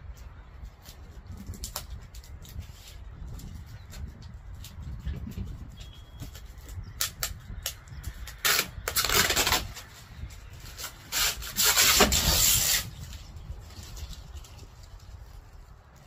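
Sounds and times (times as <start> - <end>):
plastic wrapping tearing: 6.3 - 15.4.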